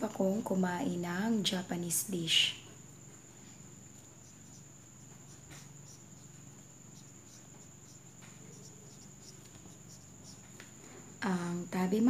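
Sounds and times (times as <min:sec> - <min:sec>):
crickets trilling: 0:00.0 - 0:12.0
marker writing on a whiteboard: 0:04.0 - 0:10.6.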